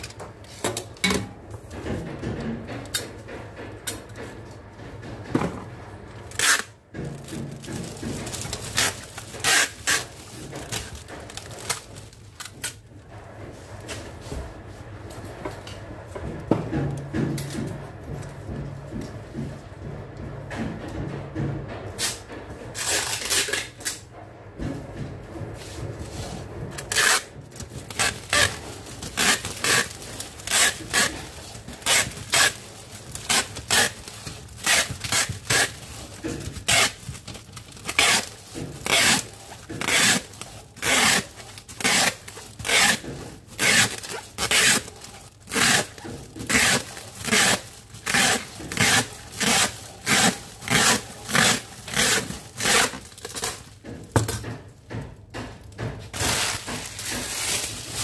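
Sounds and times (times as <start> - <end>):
plastic wrap pulled off a roll: 56.1 - 58.0.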